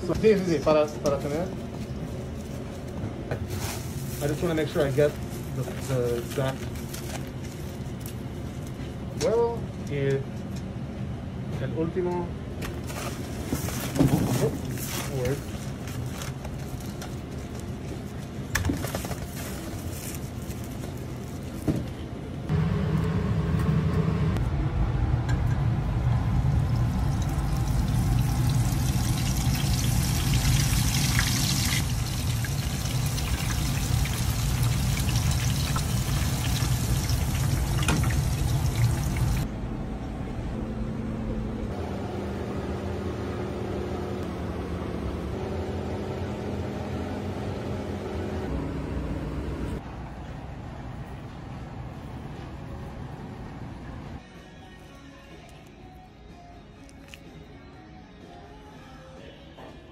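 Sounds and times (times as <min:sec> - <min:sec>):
steady low hum: 0:00.0 - 0:54.2
oil bubbling and sizzling: 0:26.4 - 0:39.5.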